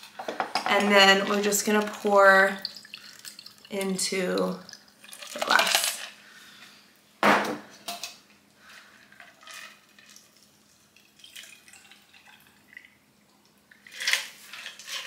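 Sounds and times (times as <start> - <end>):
liquid trickling into glass of ice: 2.3 - 3.7, 9.3 - 13.0.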